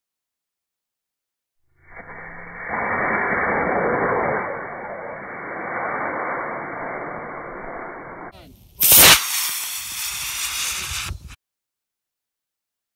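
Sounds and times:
rocket hiss: 1.8s - 11.4s
muffled rushing noise: 1.9s - 8.6s
rocket motor firing burst: 1.9s - 11.4s.

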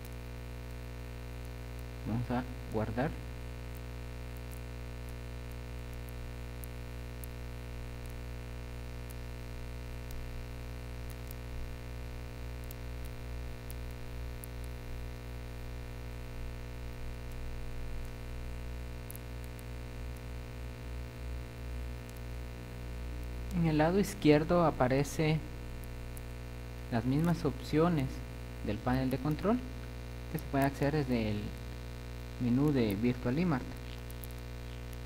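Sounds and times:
faint ticks: 0.0s - 2.0s, 3.4s - 23.6s, 25.6s - 27.3s, 33.7s - 35.0s
electrical hum: 0.0s - 35.0s
faint hiss: 10.2s - 35.0s.

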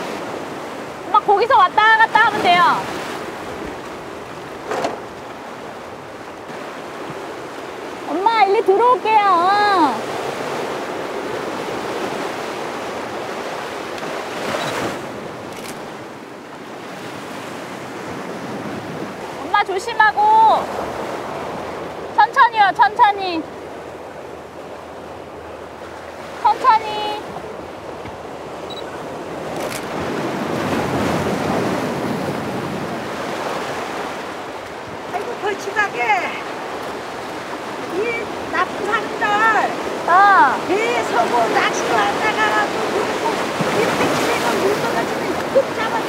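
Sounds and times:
surf washing over rocks: 0.0s - 46.0s.

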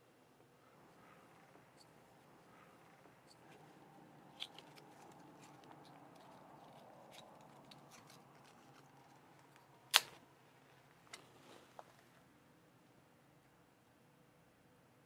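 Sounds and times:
paper rustling: 4.4s - 9.6s
matchbook clicks: 4.4s - 10.2s.

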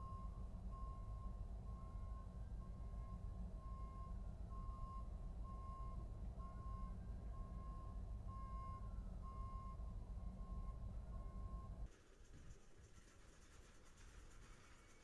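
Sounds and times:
truck backup alarm beeping: 0.0s - 11.8s.

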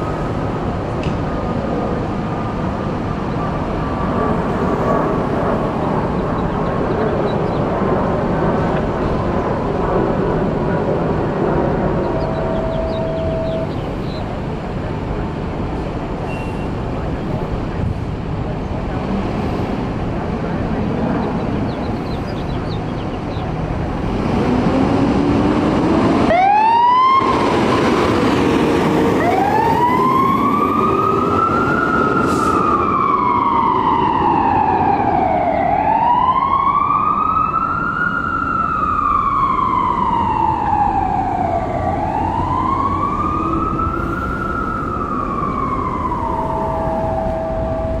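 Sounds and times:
fire engine engine running: 0.0s - 48.0s
siren wailing: 11.6s - 14.0s, 25.8s - 48.0s.

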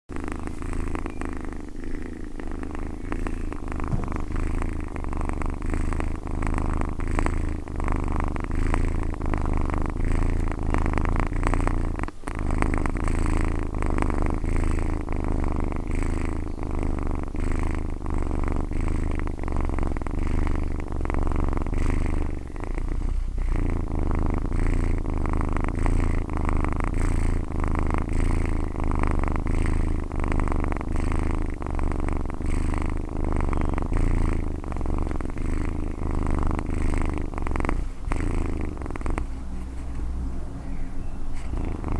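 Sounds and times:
cat purring: 0.0s - 41.9s.

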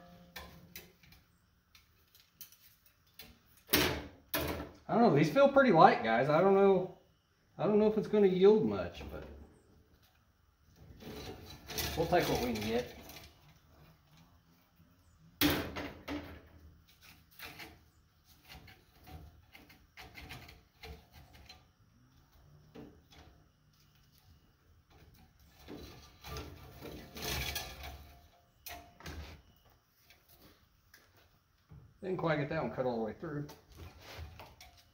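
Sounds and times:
copper wire clinks and rattles: 11.0s - 14.3s.

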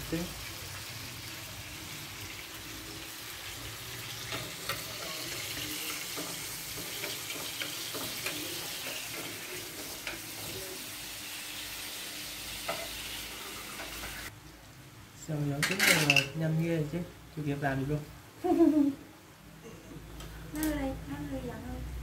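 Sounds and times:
tomato sizzling in frying pan: 0.0s - 14.4s.

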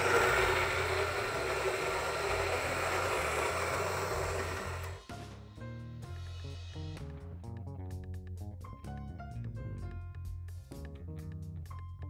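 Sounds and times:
coffee grinder whirring: 0.0s - 5.1s.

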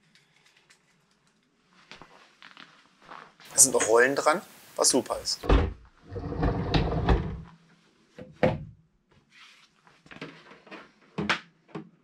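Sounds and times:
treadmill set down with knock: 5.4s - 5.8s
treadmill wheels rolling on tile: 6.0s - 7.5s.

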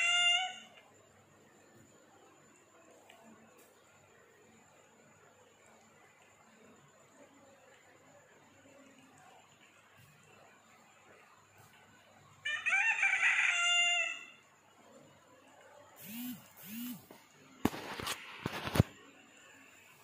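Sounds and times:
rooster crowing: 0.0s - 0.7s, 12.4s - 14.5s.

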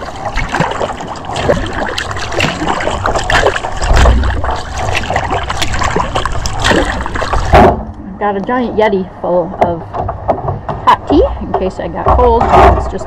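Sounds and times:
paddle strokes splashing water: 0.0s - 7.8s
low rumble: 0.0s - 13.0s
water gurgling along hull: 0.0s - 13.0s.

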